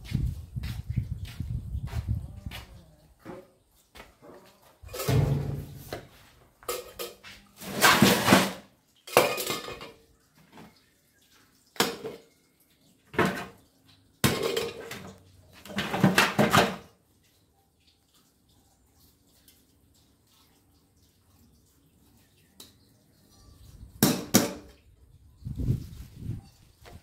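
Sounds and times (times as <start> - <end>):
metal scrap clattering in pot: 4.8 - 5.9, 6.6 - 10.0, 13.1 - 16.9.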